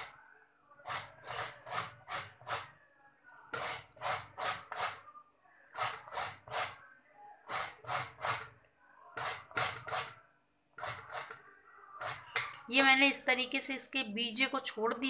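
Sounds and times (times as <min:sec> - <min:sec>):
gourd grating on hand grater: 0:00.8 - 0:02.7, 0:03.5 - 0:05.0, 0:05.7 - 0:06.8, 0:07.4 - 0:08.5, 0:09.2 - 0:10.2, 0:10.8 - 0:11.4, 0:12.0 - 0:12.5.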